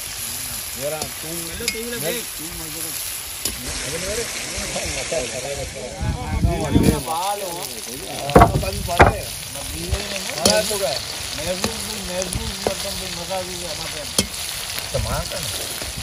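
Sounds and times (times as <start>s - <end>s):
food sizzling in hot oil: 0.0s - 16.0s
metal skimmer clinking on pan: 10.4s - 10.9s.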